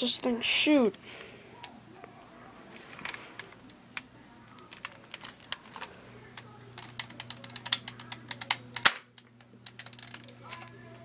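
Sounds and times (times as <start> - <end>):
sharp plastic snap: 6.8 - 10.1
toy dart blaster clicking: 6.8 - 10.2.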